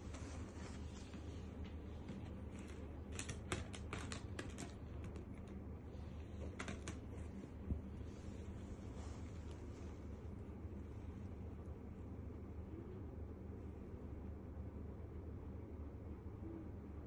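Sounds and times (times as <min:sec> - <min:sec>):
faint low hum: 0:00.0 - 0:17.0
quick light clicks and taps: 0:06.4 - 0:07.9.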